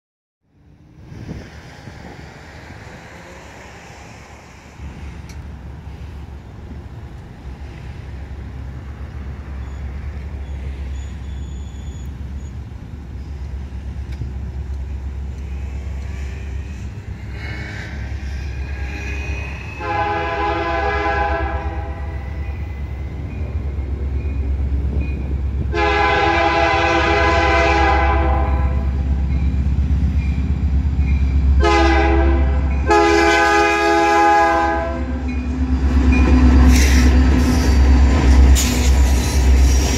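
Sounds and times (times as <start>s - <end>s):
low train rumble: 0.4s - 39.9s
locomotive air horn blasts: 17.2s - 22.4s, 25.7s - 29.0s, 31.6s - 35.3s.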